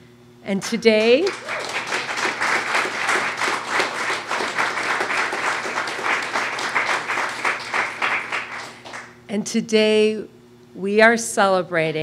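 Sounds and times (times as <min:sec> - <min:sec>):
audience applauding: 0:00.9 - 0:09.2.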